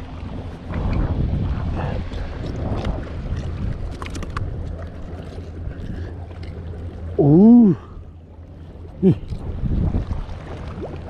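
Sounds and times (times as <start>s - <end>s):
wind on microphone: 0.0s - 6.1s, 9.1s - 11.0s
water: 0.0s - 11.0s
man's wordless vocal sound: 7.2s - 7.9s, 9.0s - 9.3s.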